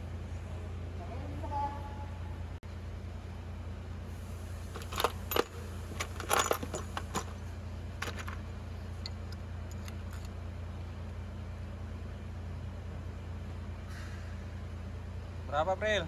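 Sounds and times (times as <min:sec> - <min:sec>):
steady low hum: 0:00.0 - 0:16.0
small metal objects clinking: 0:04.7 - 0:07.4, 0:08.0 - 0:10.3.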